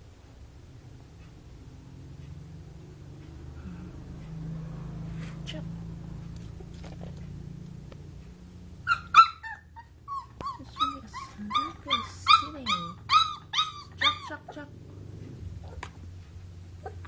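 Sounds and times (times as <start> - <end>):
puppy whimpering: 8.8 - 14.7.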